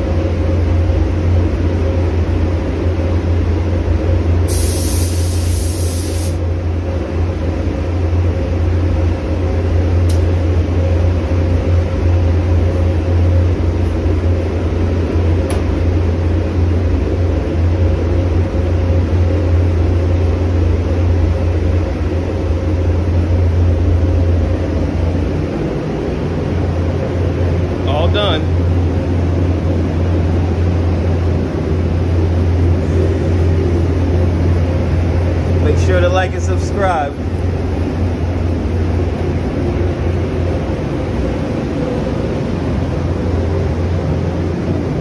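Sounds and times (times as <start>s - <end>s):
ventilation humming: 0.0s - 45.0s
spray gun hissing: 4.5s - 6.4s.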